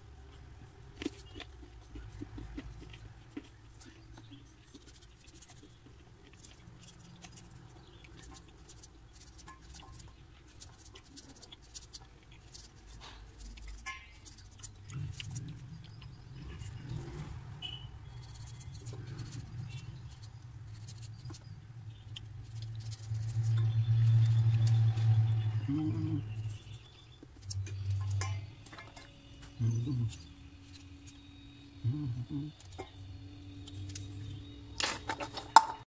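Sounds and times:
low hum: 0:14.3 - 0:35.9.

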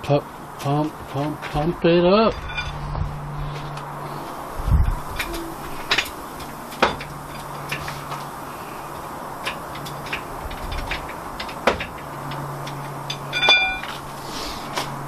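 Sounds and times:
sharp knocks: 0:06.8 - 0:07.1, 0:11.6 - 0:12.0.

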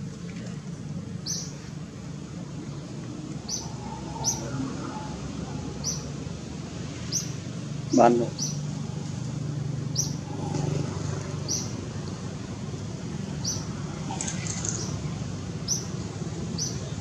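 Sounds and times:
small bird chirping: 0:01.2 - 0:01.5, 0:07.1 - 0:08.6, 0:09.9 - 0:10.2, 0:11.4 - 0:11.8.

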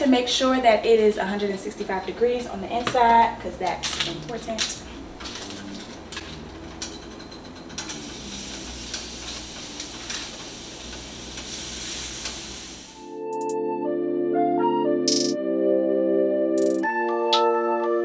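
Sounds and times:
chicken sizzling in oil: 0:07.9 - 0:13.0
music: 0:13.0 - 0:18.0.

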